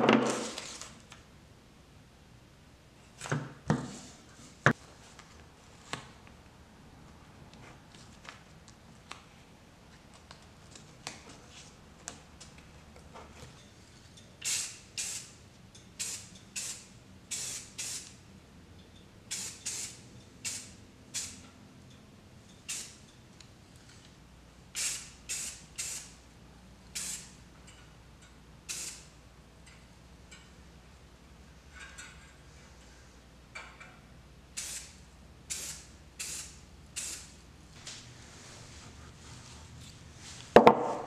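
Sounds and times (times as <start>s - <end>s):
spray can hissing bursts: 14.4s - 15.4s, 16.0s - 18.2s, 19.3s - 21.4s, 22.7s - 23.0s, 24.7s - 26.2s, 27.0s - 27.4s, 28.7s - 29.1s, 34.6s - 37.4s.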